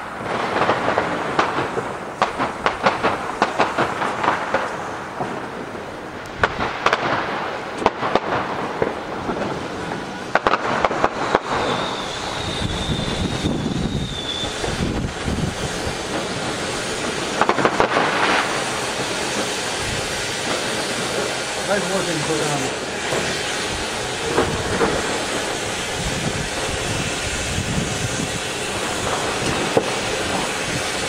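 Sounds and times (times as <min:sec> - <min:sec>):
firecrackers cracking: 0:00.0 - 0:31.0
fireworks fountain hissing: 0:00.0 - 0:31.0
thin high whistle: 0:11.2 - 0:15.9.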